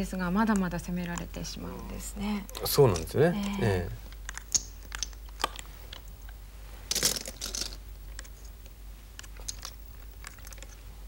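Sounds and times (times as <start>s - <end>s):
steady low hum: 0.0s - 11.0s
go stones clicking: 2.5s - 8.5s, 9.2s - 10.8s
stones clattering in hand: 6.9s - 7.8s.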